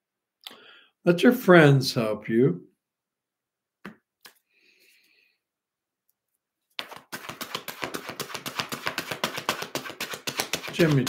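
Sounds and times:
cards flicking when shuffled: 6.8 - 11.0
cards tapping: 6.8 - 11.0.

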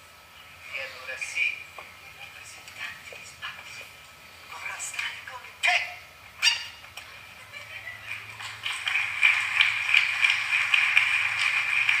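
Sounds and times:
audience applause: 7.9 - 12.0.

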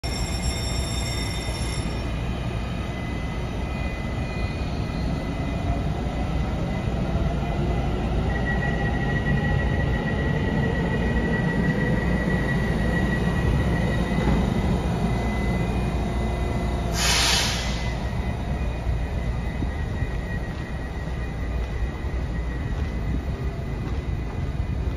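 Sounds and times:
train cars rumbling: 0.0 - 24.9
burst of hiss: 16.9 - 18.0.

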